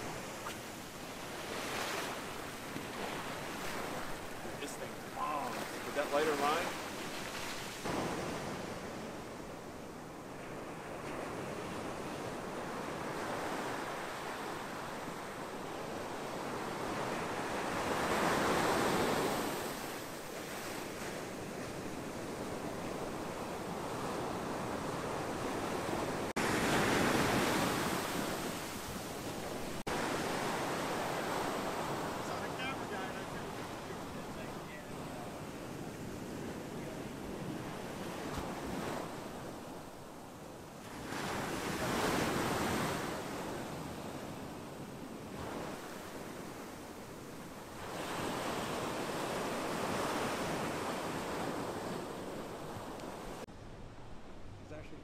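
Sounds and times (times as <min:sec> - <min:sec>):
wave breaking: 0:00.0 - 0:09.0
ocean surf washing onto beach: 0:00.0 - 0:53.5.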